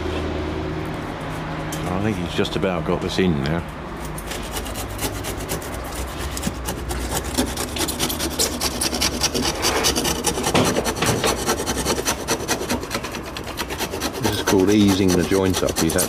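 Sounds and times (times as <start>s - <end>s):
handsaw rasping through wood: 4.3s - 16.0s.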